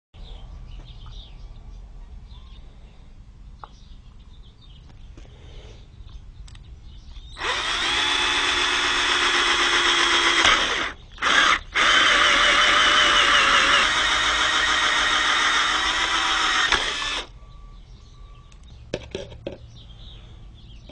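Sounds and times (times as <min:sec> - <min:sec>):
cordless drill boring into husk: 0:07.4 - 0:17.3.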